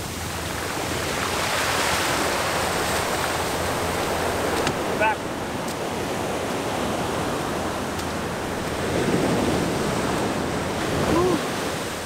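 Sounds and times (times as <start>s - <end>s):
ocean surf washing on beach: 0.0s - 12.0s
short vocal call: 11.0s - 11.4s.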